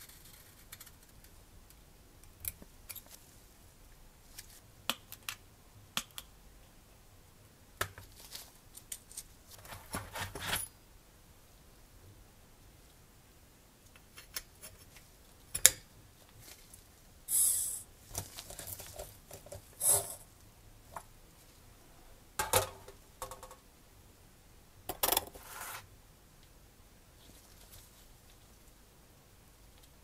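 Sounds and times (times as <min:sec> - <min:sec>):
small parts clicking and knocking: 0:22.4 - 0:23.6.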